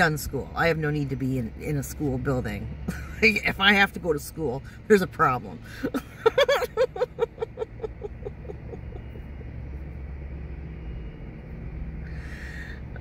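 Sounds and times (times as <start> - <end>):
low vehicle rumble: 0.0 - 13.0
woman laughing softly: 5.8 - 9.7.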